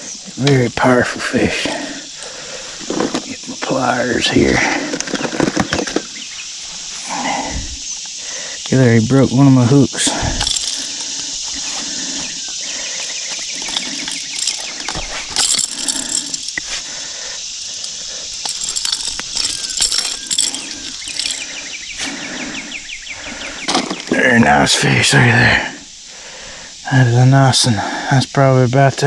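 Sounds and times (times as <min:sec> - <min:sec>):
insect chorus: 0:00.0 - 0:29.0
pliers clicking and rustling: 0:10.2 - 0:11.9, 0:12.5 - 0:16.8, 0:17.8 - 0:21.4.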